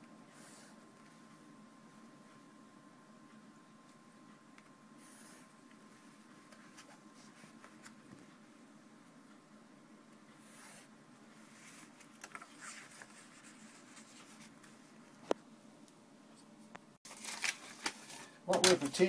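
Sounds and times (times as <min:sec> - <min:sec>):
paper sheets handling: 0:17.1 - 0:19.0.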